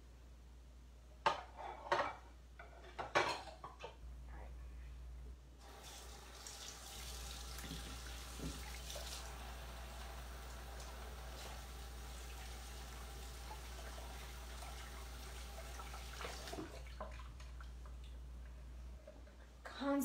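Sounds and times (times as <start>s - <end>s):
kitchenware clattering: 1.2s - 4.0s
tap water running into sink: 5.6s - 18.1s.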